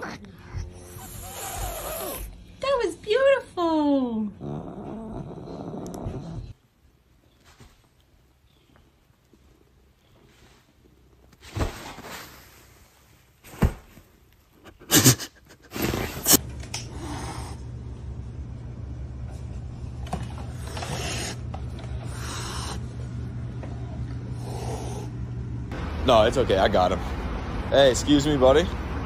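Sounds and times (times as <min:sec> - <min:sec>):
cat hissing: 0:00.0 - 0:02.4, 0:14.7 - 0:17.7, 0:20.6 - 0:21.4, 0:22.0 - 0:22.9, 0:24.3 - 0:25.2
low hum: 0:16.4 - 0:28.0.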